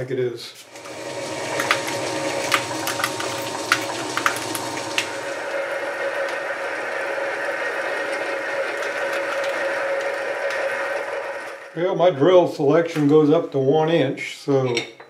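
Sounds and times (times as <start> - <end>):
metal lathe running: 0.7 - 11.8.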